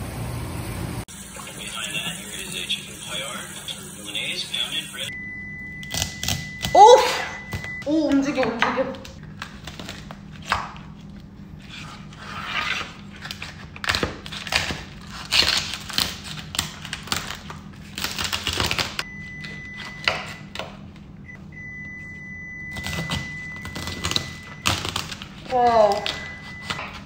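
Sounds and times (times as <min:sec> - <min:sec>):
low hum: 0:00.0 - 0:07.9, 0:19.0 - 0:27.0
faint high tone: 0:06.5 - 0:07.9.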